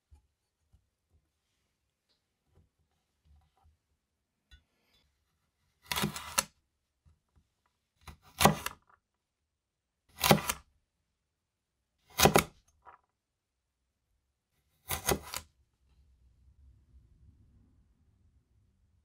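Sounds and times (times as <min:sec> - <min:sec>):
cleaver chopping on wooden board: 0:08.1 - 0:08.8, 0:10.2 - 0:10.6, 0:12.1 - 0:12.6, 0:14.9 - 0:15.4.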